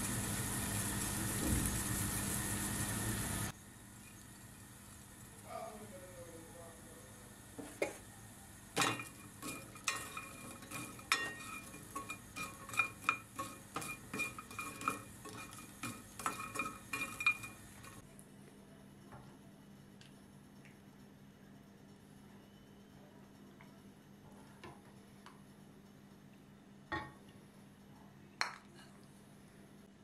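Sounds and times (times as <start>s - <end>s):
spatula knocking and scraping pan: 8.8s - 18.0s.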